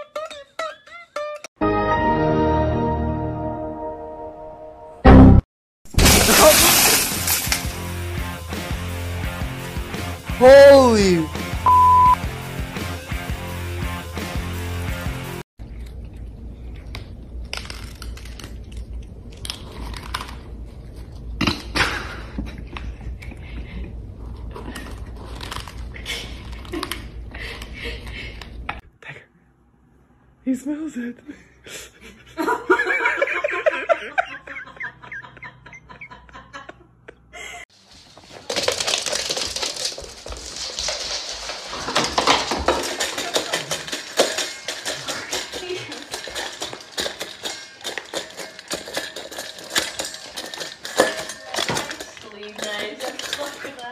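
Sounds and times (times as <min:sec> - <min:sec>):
cats crunching dry kibble: 0:15.7 - 0:21.3, 0:24.3 - 0:27.7, 0:38.2 - 0:53.9.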